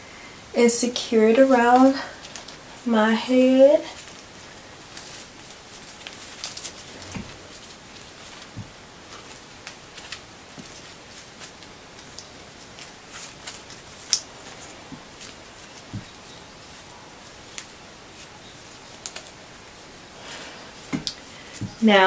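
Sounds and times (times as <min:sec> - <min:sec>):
hair rustling: 0:00.0 - 0:22.0
steady hiss: 0:00.0 - 0:22.0
soft thumps: 0:06.9 - 0:07.5.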